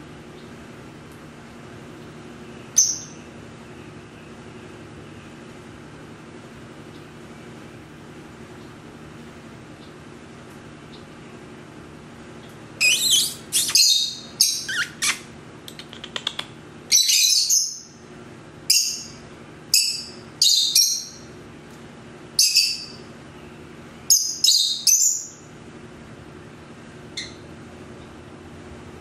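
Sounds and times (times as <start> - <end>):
steady low hum: 0.0 - 29.0
lovebirds chirping: 12.8 - 18.0, 22.4 - 25.4.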